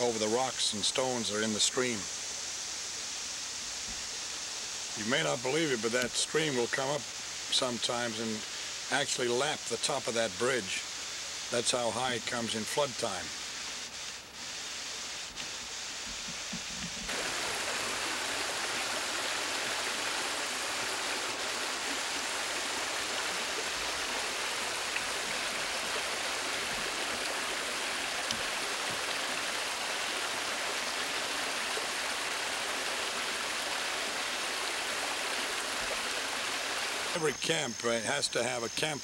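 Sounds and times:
creek bubbling over rocks: 0:17.1 - 0:37.2.

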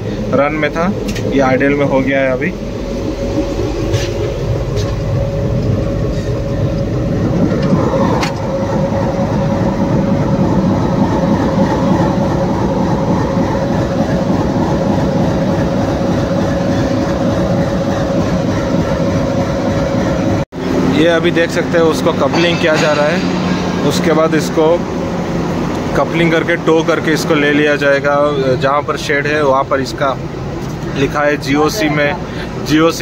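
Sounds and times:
constant hum: 0:00.0 - 0:33.0
locomotive engine idling: 0:00.0 - 0:33.0.

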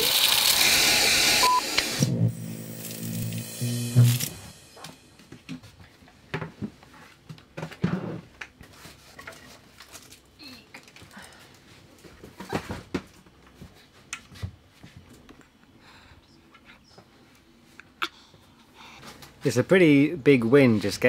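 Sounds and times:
cardboard boxes rustling and knocking: 0:12.0 - 0:13.7.

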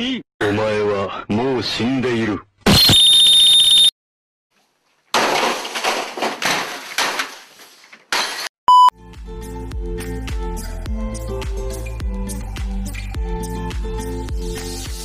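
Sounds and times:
short beep: 0:02.7 - 0:03.9, 0:08.7 - 0:08.9
crashing and smashing: 0:04.9 - 0:08.5
background music: 0:09.0 - 0:15.0.

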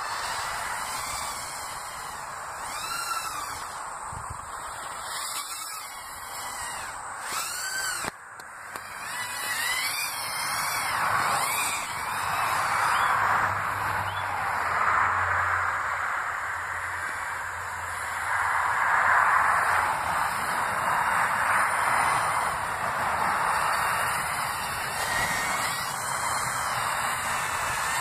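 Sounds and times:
quadcopter motors whining: 0:00.0 - 0:28.0.

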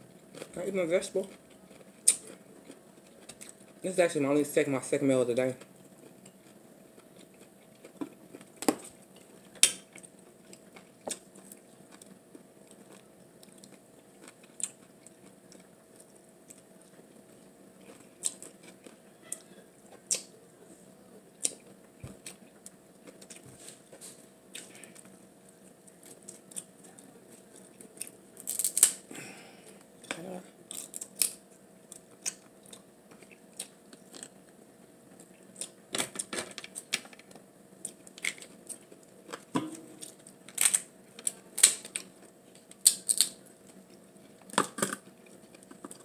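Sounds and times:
faint steady hum: 0:00.0 - 0:46.0
chewing: 0:01.3 - 0:03.8, 0:05.7 - 0:20.3, 0:21.4 - 0:25.2.

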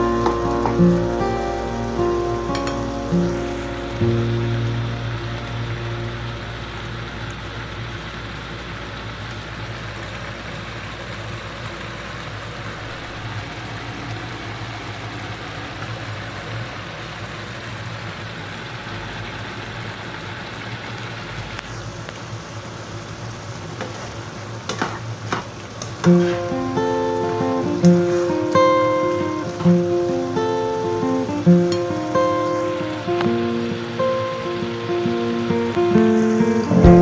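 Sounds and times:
low hum: 0:00.0 - 0:09.4, 0:36.6 - 0:37.0
food bubbling and sizzling in wok: 0:00.0 - 0:37.0.

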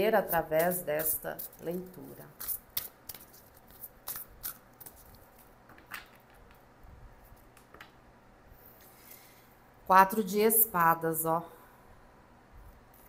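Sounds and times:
cards shuffling: 0:00.6 - 0:06.7.

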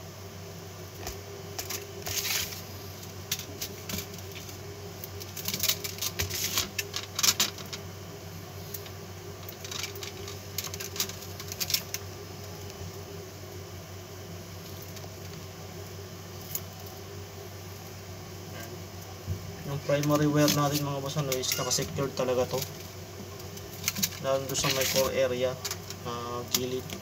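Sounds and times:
steady low hum: 0:00.0 - 0:27.0
wire rustling and scraping: 0:01.0 - 0:07.9, 0:08.7 - 0:12.6, 0:19.8 - 0:26.7.

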